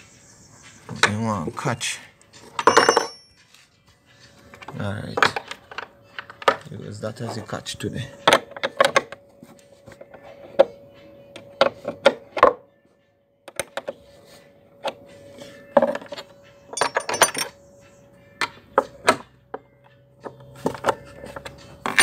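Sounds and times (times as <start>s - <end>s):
metal spanners clinking: 2.5s - 3.4s, 16.7s - 17.6s.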